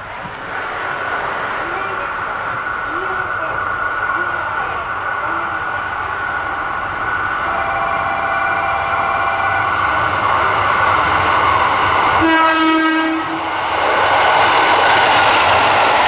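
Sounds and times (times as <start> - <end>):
diesel train passing: 0.0 - 16.0
train horn blast: 7.4 - 10.0, 12.2 - 13.4.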